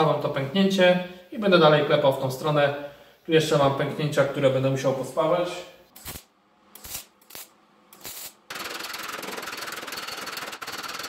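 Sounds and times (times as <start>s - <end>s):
welding tack bursts: 6.0s - 9.0s
welding arc hissing: 6.0s - 10.4s.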